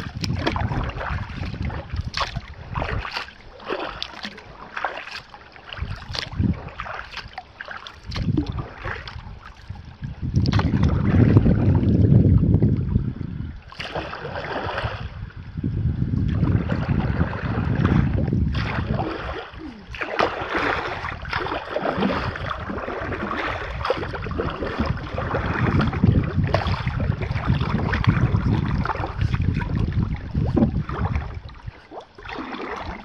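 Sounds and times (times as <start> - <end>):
water splashing around kayak: 0.0 - 33.0
wind rumbling on microphone: 0.0 - 33.0.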